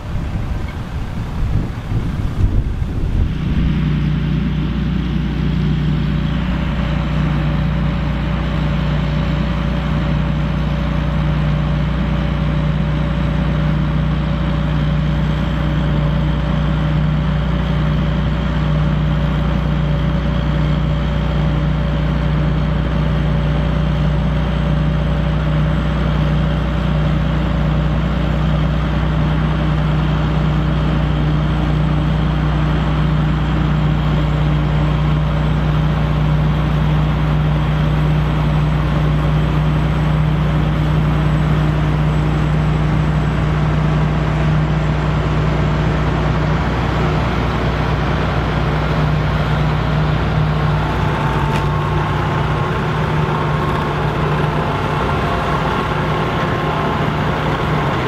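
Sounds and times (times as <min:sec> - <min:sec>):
tractor diesel engines droning: 0:00.0 - 0:58.0.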